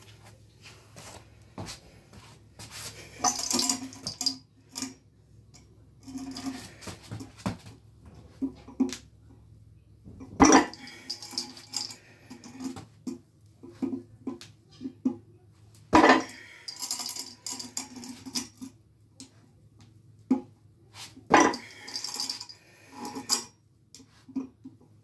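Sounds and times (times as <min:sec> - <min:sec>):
steel chains jingling: 0:03.2 - 0:05.0, 0:10.6 - 0:12.7, 0:16.2 - 0:18.6, 0:21.5 - 0:23.5.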